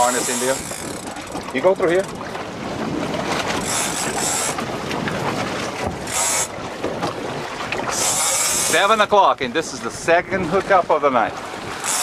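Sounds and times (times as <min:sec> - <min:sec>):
boat noise: 0:00.0 - 0:12.0
wind on microphone: 0:00.0 - 0:12.0.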